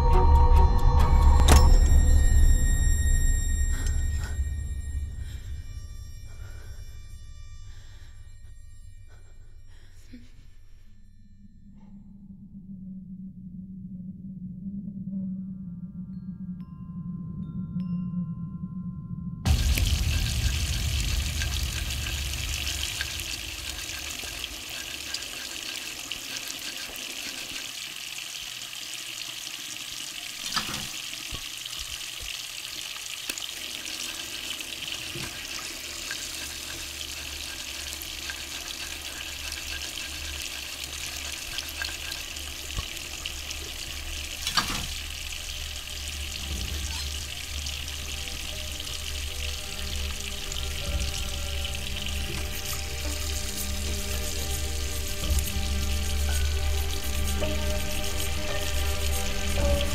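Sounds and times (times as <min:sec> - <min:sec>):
knife scrubbed with cloth: 0:35.2 - 0:43.0.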